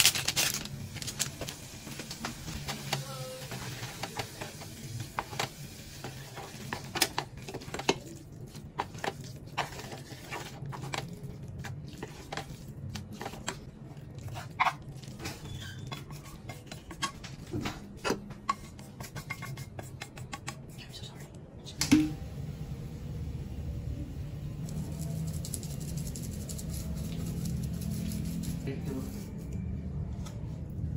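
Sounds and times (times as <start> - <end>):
chopsticks scraping a saucepan: 6.0 - 13.6, 14.2 - 17.2.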